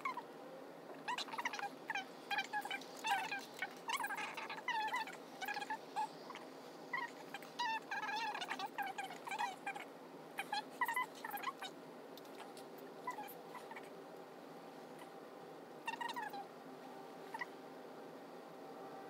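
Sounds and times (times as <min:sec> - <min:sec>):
high-pitched animal calls: 0:00.0 - 0:00.3, 0:00.9 - 0:14.0, 0:15.8 - 0:16.5, 0:17.2 - 0:17.6.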